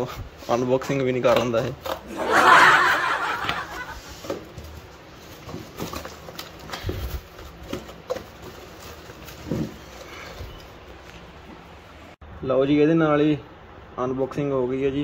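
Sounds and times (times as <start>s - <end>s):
cardboard rustling and scraping: 3.6s - 11.7s.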